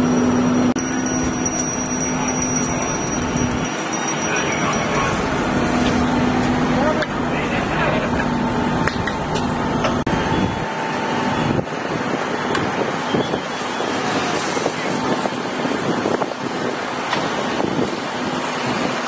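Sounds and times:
fire engine pump noise: 0.0 - 19.0
water spraying from hoses: 13.0 - 19.0.

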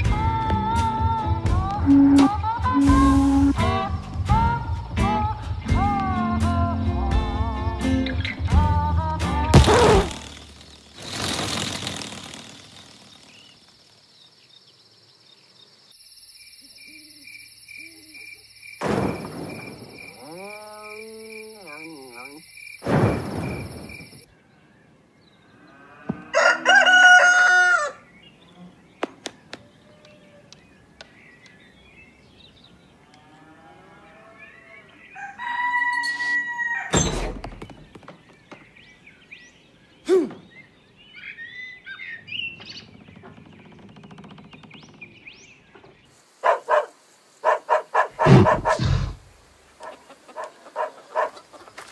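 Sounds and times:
steady high tone: 1.9 - 3.7
thuds: 9.5 - 10.3, 36.9 - 38.6, 48.2 - 49.2
cartoon swoosh: 9.6 - 10.4
rooster crowing: 25.8 - 28.1, 33.7 - 37.0.

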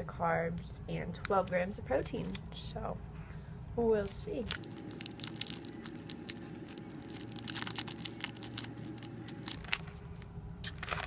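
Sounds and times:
plastic wrapper crinkling: 4.4 - 10.0.

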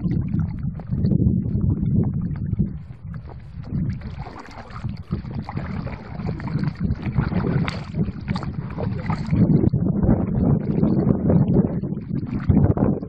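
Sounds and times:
water splashing from paddling: 0.0 - 9.7
wind buffeting microphone: 0.0 - 13.0.

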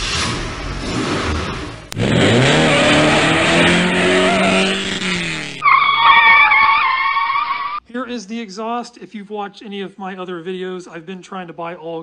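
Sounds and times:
car engine revving hard: 0.0 - 5.6
high wavering squeal: 5.6 - 7.8.

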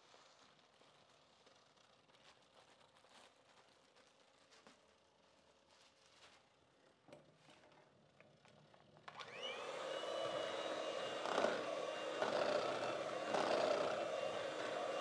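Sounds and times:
electric hand mixer whining: 9.2 - 15.0.

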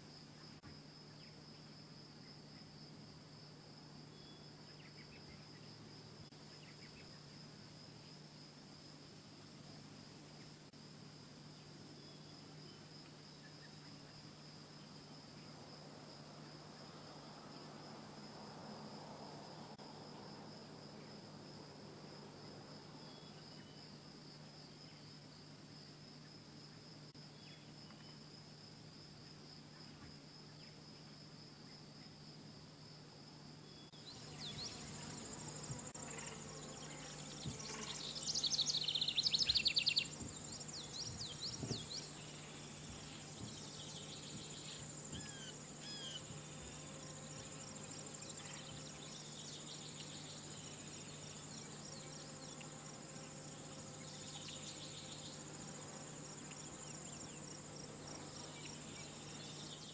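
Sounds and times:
high insect buzz: 0.0 - 59.9
insects trilling: 33.6 - 59.9.

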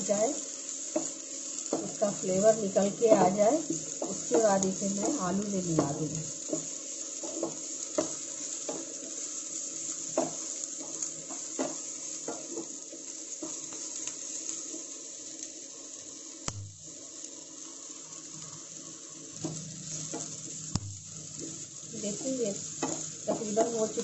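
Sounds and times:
food sizzling in oil: 0.0 - 24.0
spatula scraping and knocking pan: 2.8 - 9.0, 10.0 - 12.8, 21.4 - 24.0.

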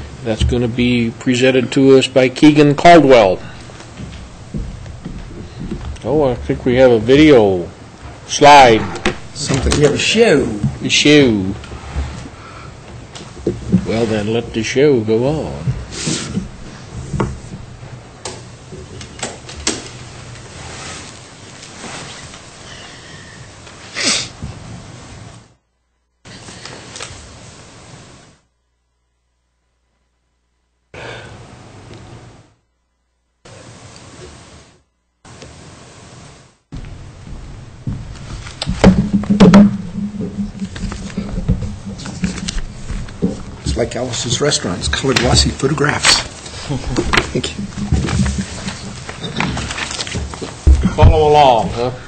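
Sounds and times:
low steady hum: 0.0 - 23.7, 24.5 - 52.0
knocks and thumps on table: 8.8 - 9.9, 36.8 - 43.7, 46.9 - 49.7.

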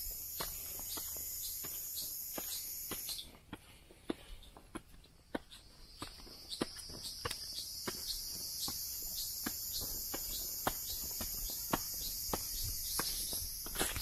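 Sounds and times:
high-pitched insect chorus: 0.0 - 3.4, 5.8 - 14.0
footsteps on leafy earth trail: 0.0 - 14.0.

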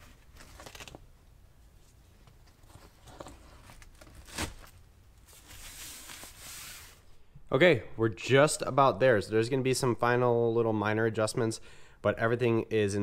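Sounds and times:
velcro ripping: 0.4 - 1.0, 3.7 - 4.8.

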